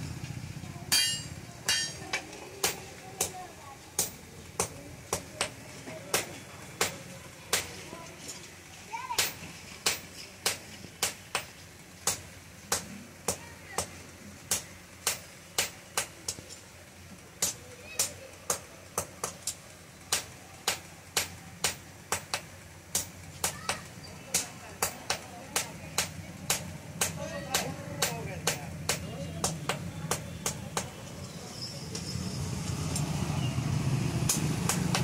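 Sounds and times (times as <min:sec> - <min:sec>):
hammer striking iron on anvil: 0:00.9 - 0:03.4, 0:04.0 - 0:07.7, 0:09.2 - 0:13.9, 0:14.5 - 0:16.4, 0:17.4 - 0:19.4, 0:20.1 - 0:30.9.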